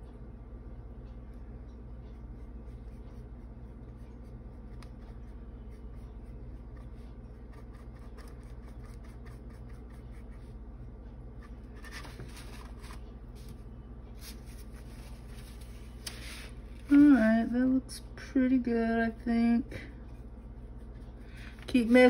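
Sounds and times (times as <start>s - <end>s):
low steady hum: 0.0s - 22.0s
paintbrush scratching on wood: 2.1s - 10.6s, 20.0s - 22.0s.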